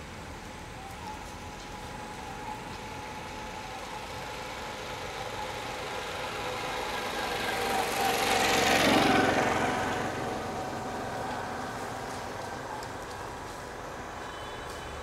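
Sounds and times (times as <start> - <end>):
small vehicle engine passing: 2.9 - 14.2.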